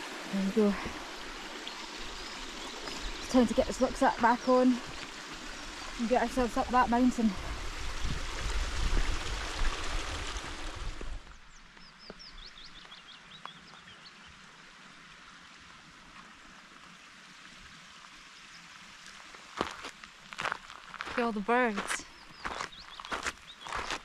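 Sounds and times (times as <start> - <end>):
stream water running: 0.0 - 24.0
songbird singing: 0.3 - 8.2, 11.2 - 14.4, 21.0 - 24.0.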